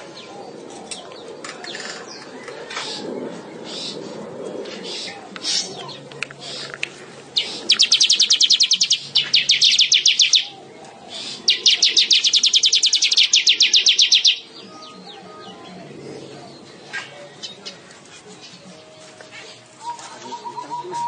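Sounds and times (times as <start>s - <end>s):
bird chattering trill: 7.4s - 10.5s, 11.2s - 14.5s.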